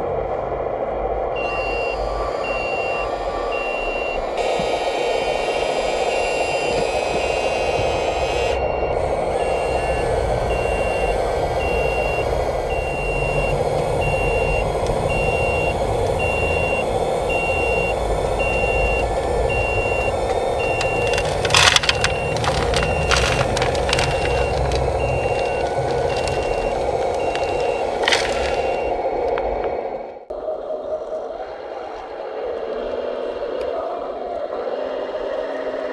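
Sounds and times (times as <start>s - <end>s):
hydraulic pump hum: 1.1s - 30.1s
warning beeper: 1.4s - 29.0s
soil and stones rattling into plastic: 19.6s - 28.9s.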